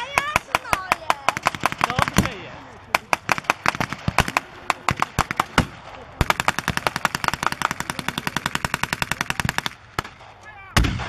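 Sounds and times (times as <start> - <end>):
machine gun burst: 6.2 - 9.7
single gunshots: 9.0 - 11.0.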